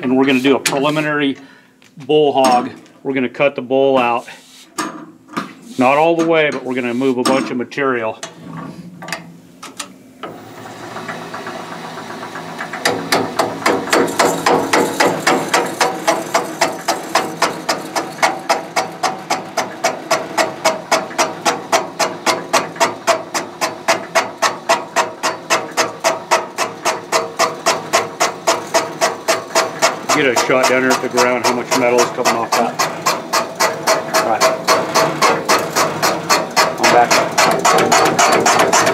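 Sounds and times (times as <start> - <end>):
machine spindle cutting metal: 10.3 - 38.9
cutter chattering knocks: 12.0 - 38.9.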